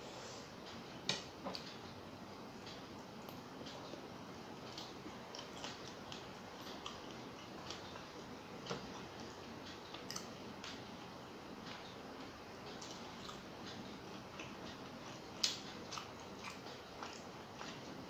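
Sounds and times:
steady low hiss: 0.0 - 18.0
wet chewing clicks: 4.6 - 8.2, 8.8 - 10.8, 12.6 - 18.0.

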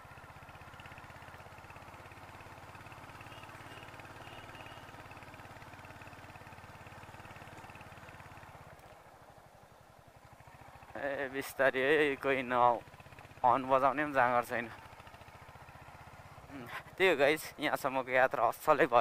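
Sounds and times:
motorcycle engine running: 0.0 - 19.0.

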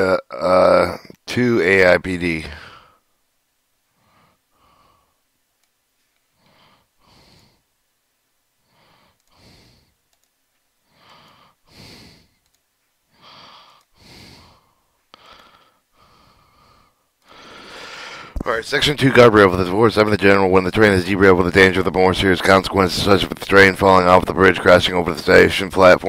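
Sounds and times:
man breathing quietly: 2.5 - 5.4, 6.0 - 7.9, 8.5 - 18.4.

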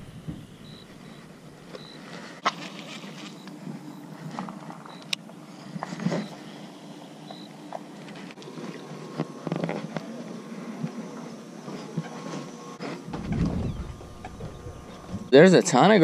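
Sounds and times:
steps on wooden dock: 0.0 - 1.8, 12.8 - 15.3
faint steady hum: 0.0 - 16.0.

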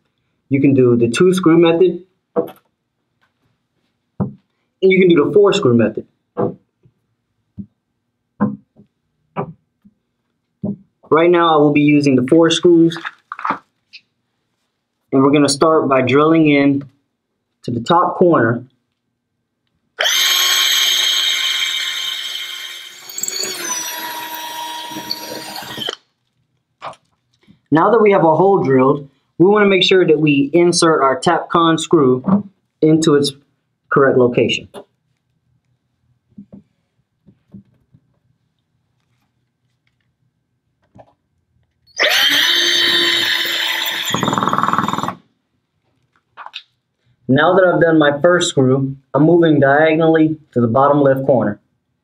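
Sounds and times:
drill boring into concrete: 20.0 - 26.0, 41.9 - 45.2.

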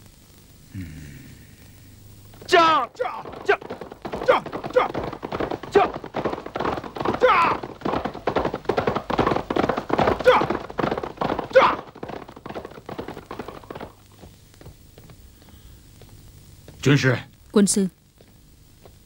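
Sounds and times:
horses galloping on dirt: 2.3 - 15.5.

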